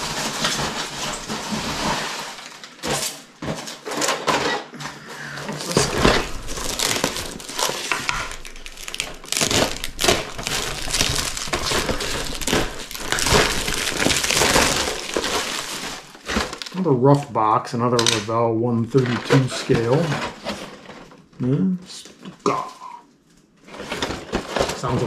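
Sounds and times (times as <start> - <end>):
cardboard boxes shuffled: 0.0 - 16.8, 23.6 - 25.0
plastic wrapping crinkling: 0.0 - 25.0.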